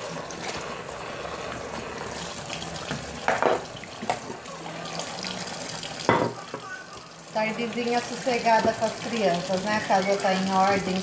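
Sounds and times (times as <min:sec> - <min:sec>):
tap running into sink: 0:02.8 - 0:04.4, 0:08.5 - 0:10.0
dishes clattering: 0:03.2 - 0:04.3, 0:06.0 - 0:06.7.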